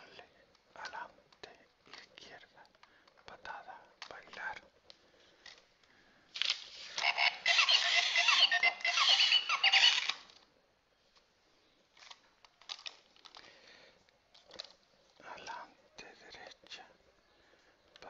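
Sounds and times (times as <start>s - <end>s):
faint plastic clicks: 0.1s - 6.6s, 11.1s - 18.0s
toy robot electronic bleeps: 7.0s - 10.2s.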